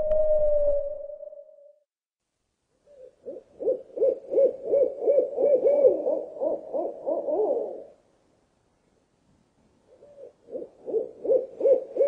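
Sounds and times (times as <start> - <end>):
owl hooting: 0.0 - 1.6, 2.8 - 8.0, 9.9 - 12.0.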